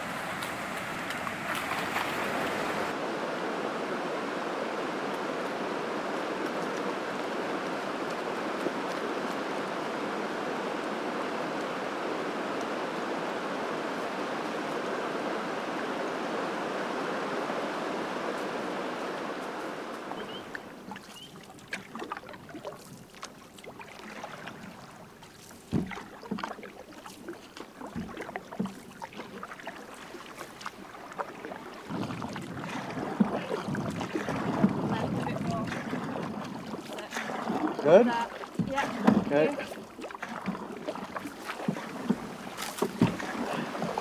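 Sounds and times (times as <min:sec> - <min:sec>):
canoe paddle strokes: 0:00.0 - 0:44.0
flowing creek rushing: 0:00.0 - 0:44.0
knocks on canoe hull: 0:25.7 - 0:26.5, 0:38.3 - 0:44.0.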